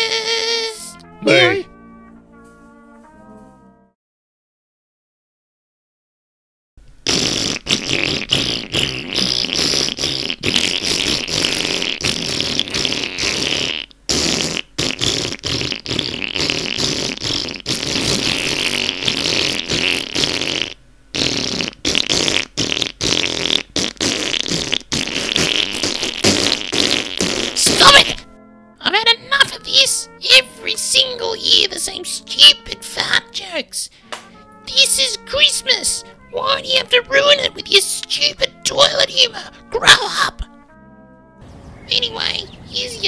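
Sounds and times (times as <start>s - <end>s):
long sputtering fart: 0.0s - 1.6s, 7.0s - 28.4s, 34.4s - 40.7s.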